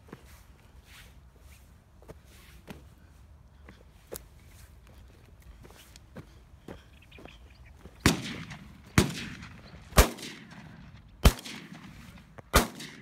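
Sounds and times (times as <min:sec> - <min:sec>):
shotgun shots with echo: 0:08.0 - 0:13.0.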